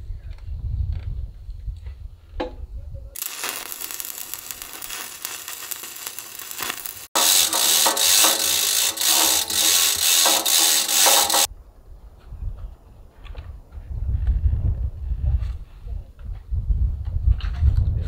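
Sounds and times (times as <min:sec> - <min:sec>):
chain hoist clicking and rattling: 0:03.2 - 0:11.5
welding arc crackling: 0:03.2 - 0:11.5.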